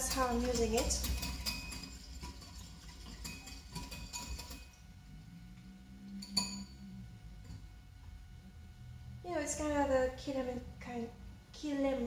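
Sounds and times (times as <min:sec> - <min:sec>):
metal clink against ceramic bowl: 0:00.0 - 0:04.8, 0:06.2 - 0:06.8
whisk clinking in ceramic bowl: 0:00.0 - 0:04.8.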